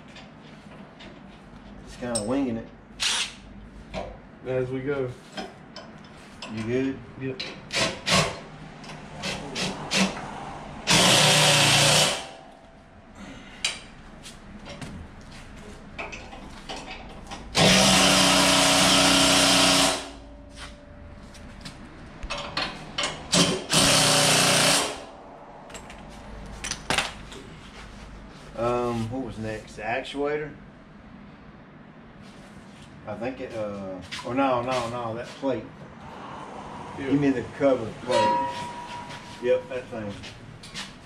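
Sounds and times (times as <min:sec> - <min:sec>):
metal clicks and knocks: 0:22.2 - 0:23.4.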